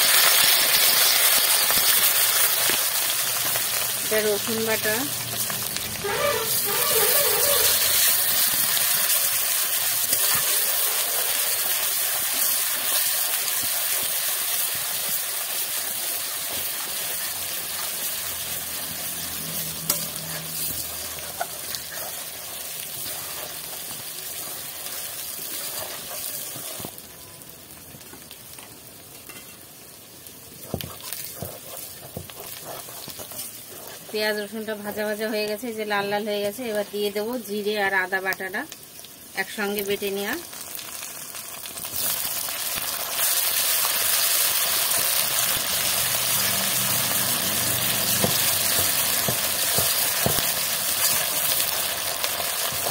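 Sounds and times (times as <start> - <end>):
paste sizzling in hot oil: 0.0 - 52.9
metal spatula scraping pan: 5.4 - 9.0, 18.8 - 24.6.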